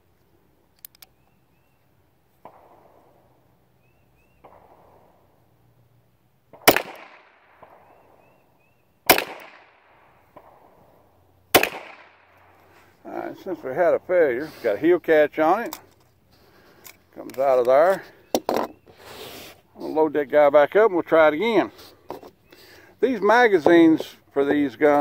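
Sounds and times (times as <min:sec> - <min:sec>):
faint gunshots: 0:02.4 - 0:03.1, 0:04.4 - 0:05.1, 0:06.5 - 0:08.4, 0:09.1 - 0:10.8, 0:11.5 - 0:12.3
pistol shots: 0:02.4 - 0:03.1, 0:04.4 - 0:05.1, 0:06.5 - 0:08.4, 0:09.1 - 0:10.8, 0:11.5 - 0:12.5.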